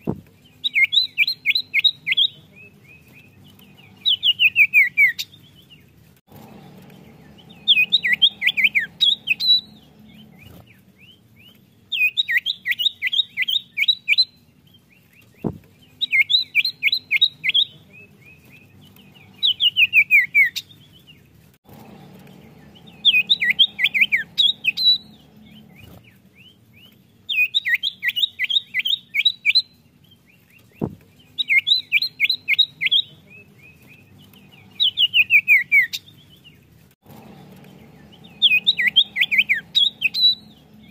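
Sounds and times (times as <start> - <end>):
bird singing high notes: 6.4 - 10.6, 21.7 - 26.0, 37.2 - 40.9.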